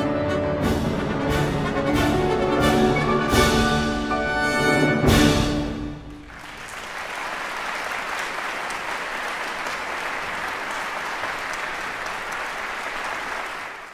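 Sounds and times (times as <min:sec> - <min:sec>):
audience applauding: 0:06.0 - 0:13.9.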